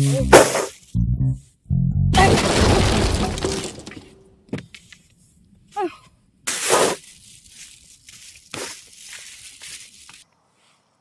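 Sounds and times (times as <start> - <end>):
cardboard rustling and scuffs: 6.6 - 10.2.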